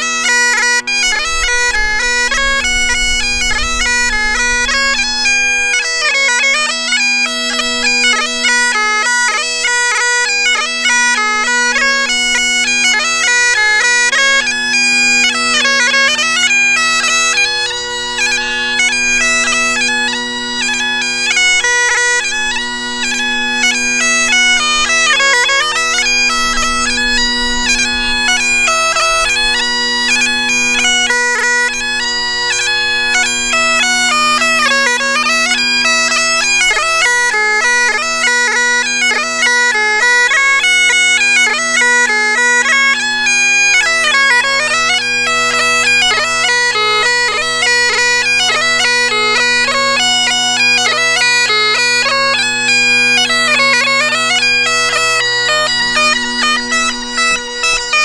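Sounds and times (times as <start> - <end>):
bagpipe drones humming: 0.0 - 58.0
bagpipe melody with grace notes: 0.0 - 58.0.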